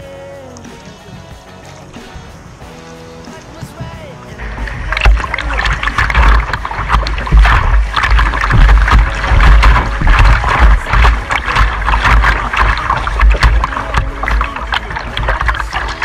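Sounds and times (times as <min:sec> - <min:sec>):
water buffeting microphone: 0:00.5 - 0:16.0
paddle splashes: 0:03.3 - 0:16.0
whitewater rapids rushing: 0:03.3 - 0:16.0.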